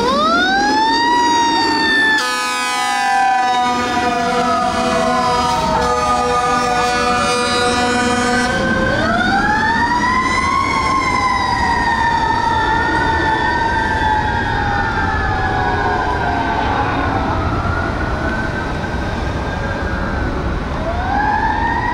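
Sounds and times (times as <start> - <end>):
second siren wailing: 0.0 - 21.9
horn blast: 2.2 - 8.8.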